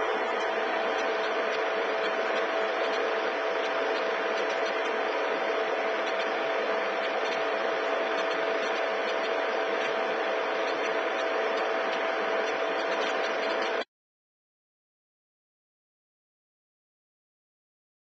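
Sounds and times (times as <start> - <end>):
mid-pitched hum: 0.0 - 13.9.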